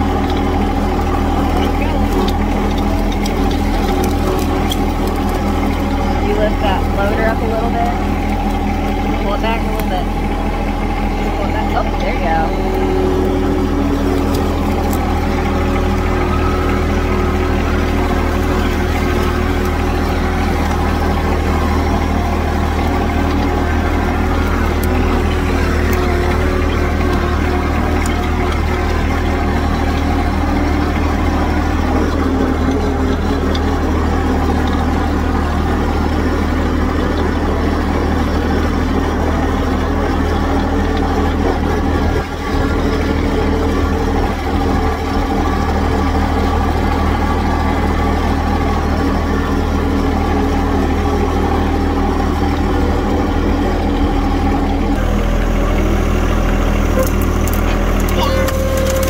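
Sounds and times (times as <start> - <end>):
tractor engine running: 0.0 - 59.0.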